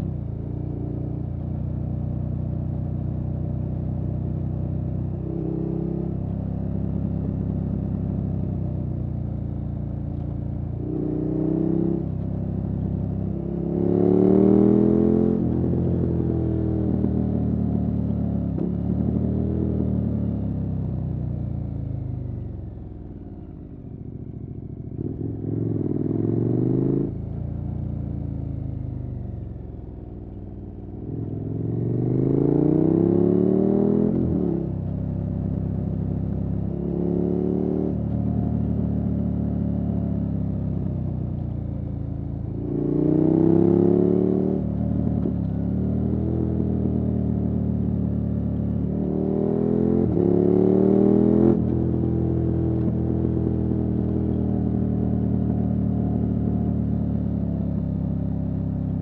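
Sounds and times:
motorcycle engine accelerating: 12.8 - 20.7, 21.6 - 59.0.

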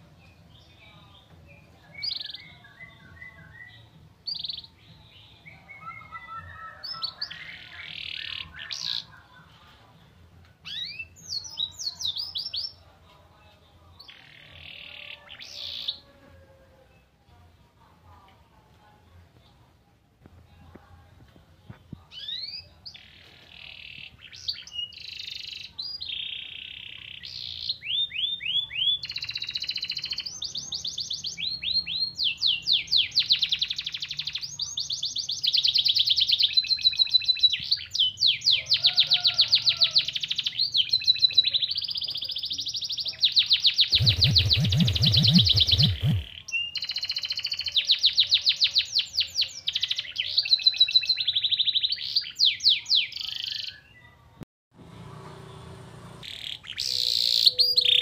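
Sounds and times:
canary singing trills: 22.1 - 54.1, 56.2 - 58.0
burst of noise: 43.9 - 46.3.

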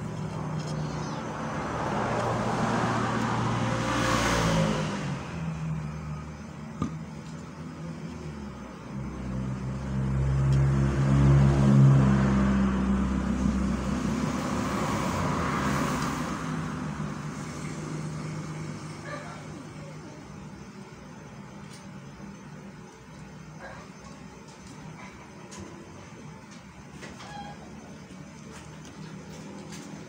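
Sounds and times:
passing vehicle rush: 0.0 - 6.4, 8.9 - 19.3
vehicle engine hum: 0.0 - 30.0.

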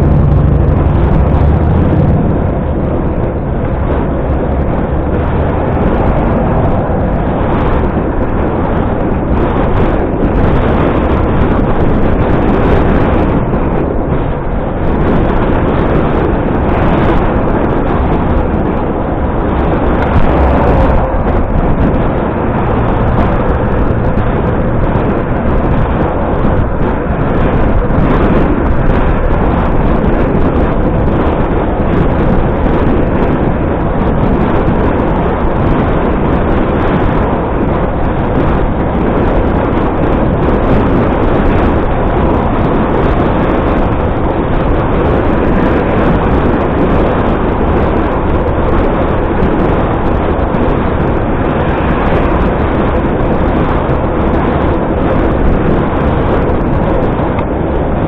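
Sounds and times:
wind and road rushing noise: 0.0 - 58.0.

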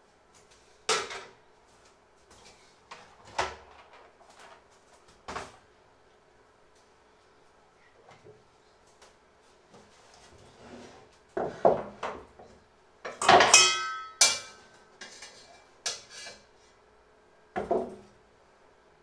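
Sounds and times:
kitchen utensils knocking together: 13.1 - 14.6
metallic clang: 13.2 - 14.6.

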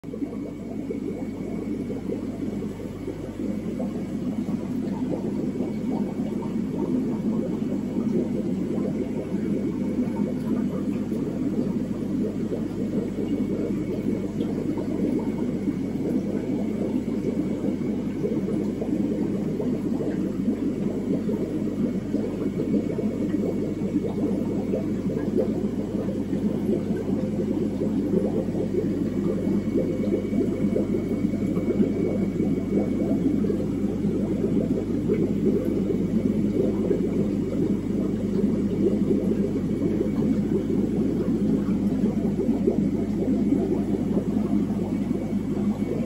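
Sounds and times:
air bubbling through filters: 0.0 - 46.0
constant low hum: 0.0 - 46.0.

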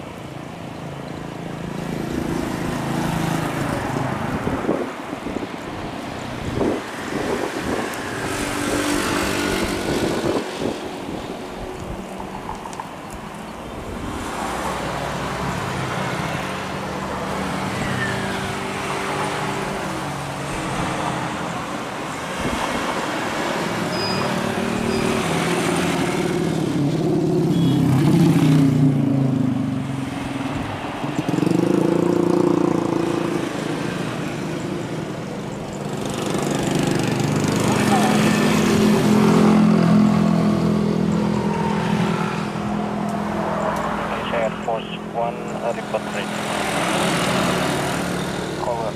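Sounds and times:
jet engines rumbling: 41.0 - 48.9.

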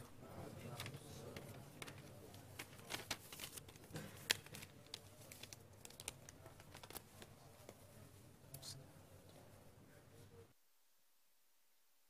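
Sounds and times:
paper rustling and folding: 0.6 - 7.8.

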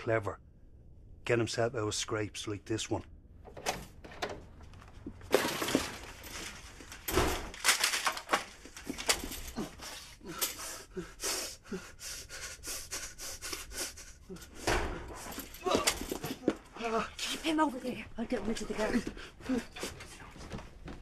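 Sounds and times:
person breathing hard and gasping: 9.4 - 15.6.

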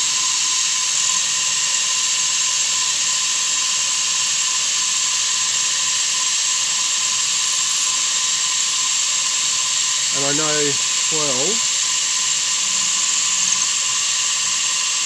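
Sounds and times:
milling machine cutting steel: 7.1 - 15.0.

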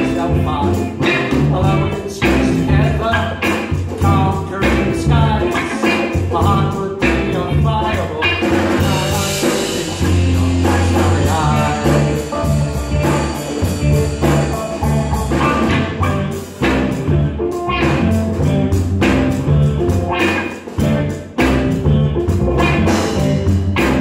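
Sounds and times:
live rock band playing: 0.0 - 24.0
pulsing bass line: 0.0 - 24.0
drum hits: 8.4 - 24.0.

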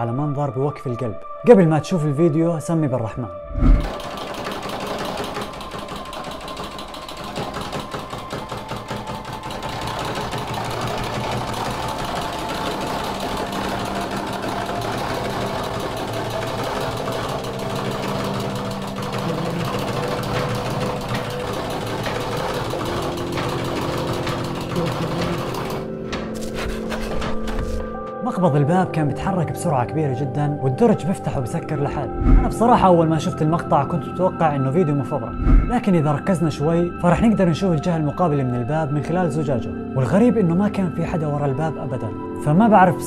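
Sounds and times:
door handle rattling: 3.8 - 28.0.

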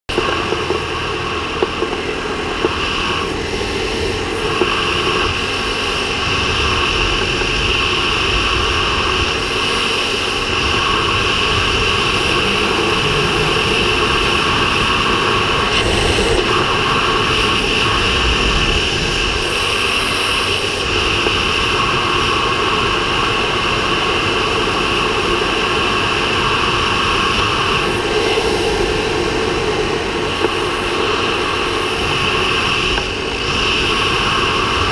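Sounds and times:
motorcycle engine cruising: 0.1 - 34.9
wind rushing over camera: 0.1 - 34.9.

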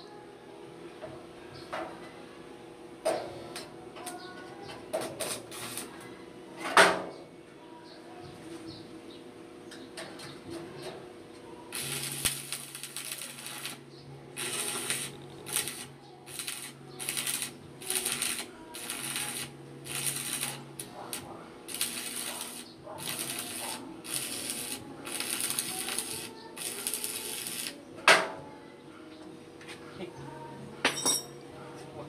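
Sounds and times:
arc welder crackling: 4.9 - 6.0, 11.7 - 27.8.

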